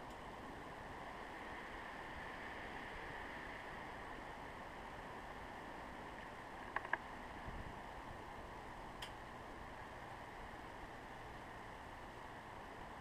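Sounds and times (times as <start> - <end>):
woodpecker pecking taps: 6.7 - 7.0.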